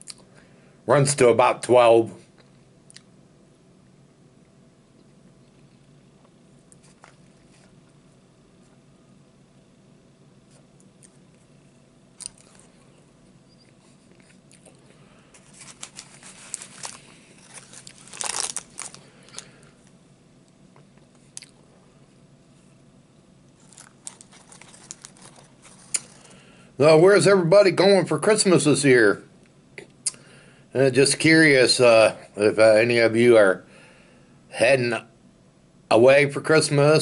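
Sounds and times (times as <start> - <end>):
person chewing food: 4.9 - 8.0, 12.2 - 19.5, 20.7 - 21.6.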